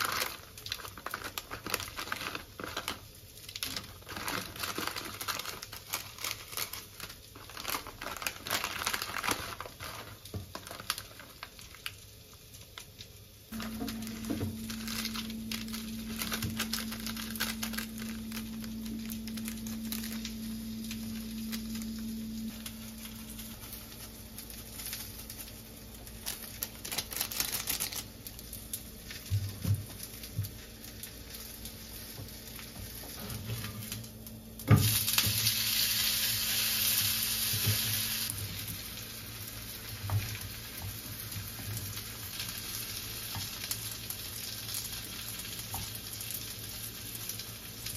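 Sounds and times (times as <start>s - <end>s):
crinkling and rustling by hand: 0.0s - 35.6s
low electric hum: 0.0s - 47.9s.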